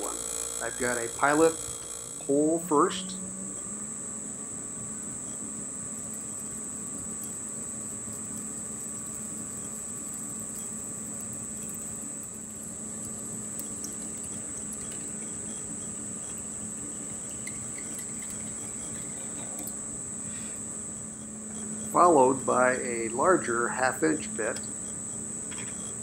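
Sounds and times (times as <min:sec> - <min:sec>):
lathe humming with high whine: 0:00.0 - 0:26.0.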